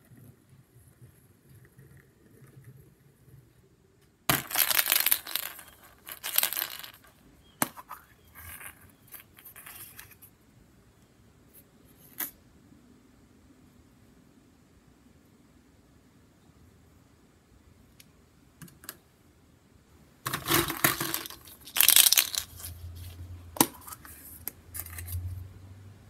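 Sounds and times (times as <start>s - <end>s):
plastic eggs clattering in bucket: 4.3s - 7.0s, 20.3s - 22.7s.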